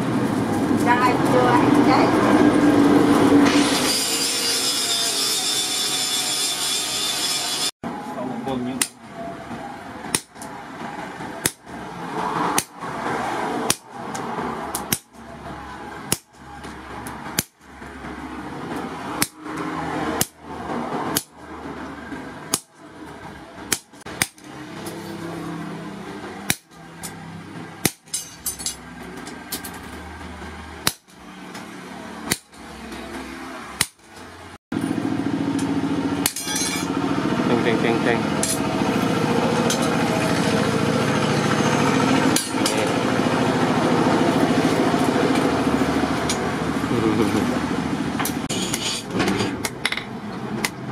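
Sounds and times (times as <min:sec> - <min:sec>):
hammer striking chisel on metal: 0:08.8 - 0:09.0, 0:19.2 - 0:20.4, 0:21.1 - 0:21.4, 0:27.8 - 0:29.3, 0:35.6 - 0:36.9.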